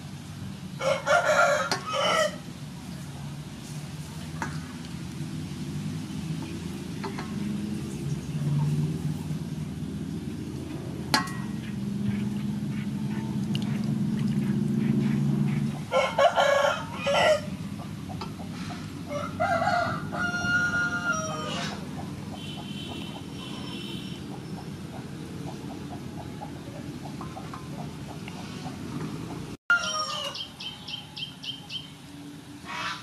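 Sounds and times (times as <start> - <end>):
rooster crowing: 0.8 - 2.4, 15.9 - 17.6, 19.0 - 21.8, 29.7 - 31.3
chickens clucking: 11.2 - 23.4, 24.3 - 30.4.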